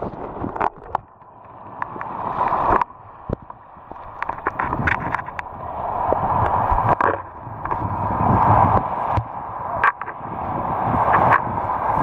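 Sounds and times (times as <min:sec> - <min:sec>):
small waves washing over sand: 0:01.6 - 0:12.0.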